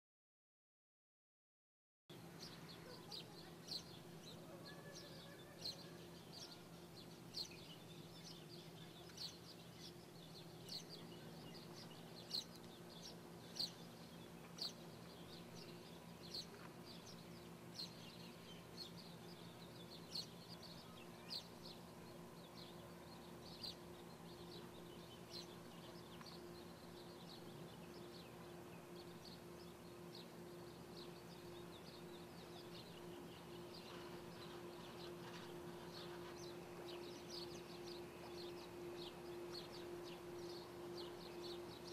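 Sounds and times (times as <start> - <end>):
faint low hum: 2.1 - 41.9
small bird chirping: 2.4 - 41.9.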